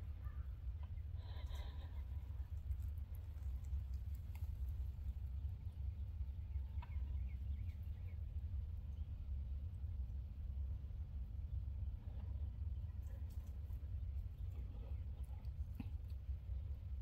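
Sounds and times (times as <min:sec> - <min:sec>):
faint short bird calls: 0:00.0 - 0:02.2
low steady rumble: 0:00.0 - 0:17.0.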